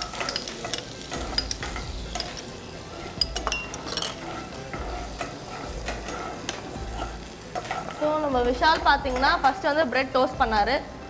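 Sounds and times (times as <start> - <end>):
food sizzling in a pan: 0.0 - 11.0.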